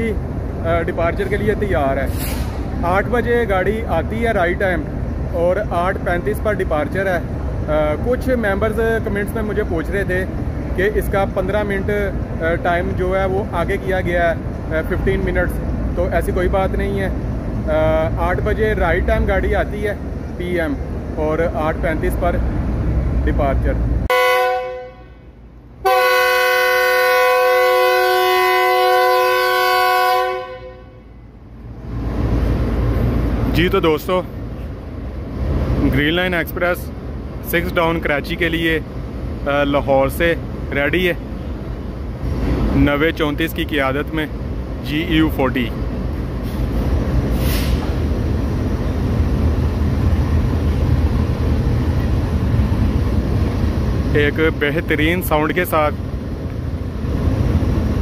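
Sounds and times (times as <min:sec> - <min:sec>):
locomotive engine rumbling: 0:00.0 - 0:58.0
short hiss: 0:02.0 - 0:02.8, 0:46.4 - 0:48.0
locomotive air horn blasts: 0:24.1 - 0:31.3.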